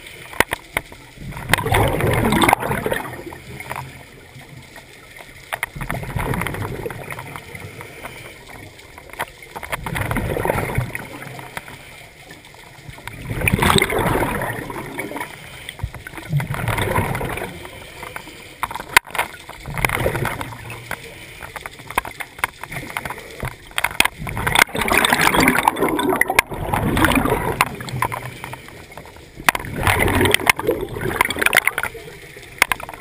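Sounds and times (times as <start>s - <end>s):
scuba breathing bubbles: 1.2s - 4.2s, 5.7s - 22.1s, 22.7s - 33.0s.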